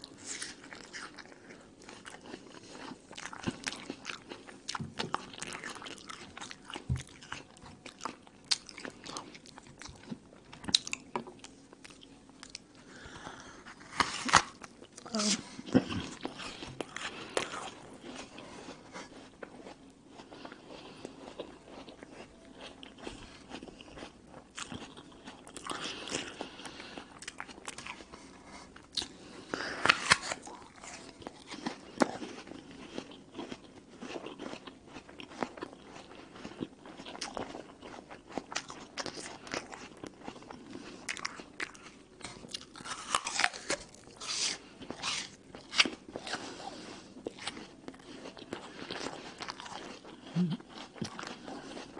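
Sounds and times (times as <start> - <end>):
apple being bitten and chewed: 13.6 - 51.9.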